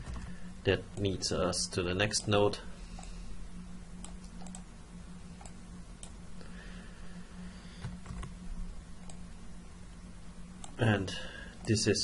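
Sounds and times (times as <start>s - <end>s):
low hum: 0.0s - 12.0s
computer mouse clicks: 4.0s - 4.7s.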